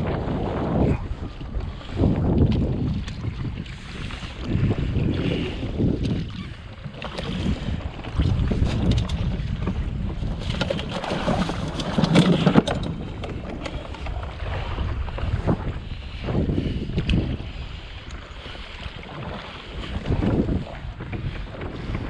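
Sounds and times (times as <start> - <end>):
water slapping against hull: 0.0 - 22.0
wind buffeting microphone: 0.0 - 22.0
fishing gear clicking and knocking: 8.4 - 14.3.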